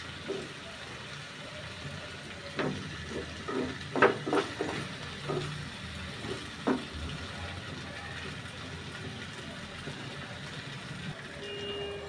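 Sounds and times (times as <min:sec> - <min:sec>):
metal spatula scraping a pan: 0:02.6 - 0:06.9.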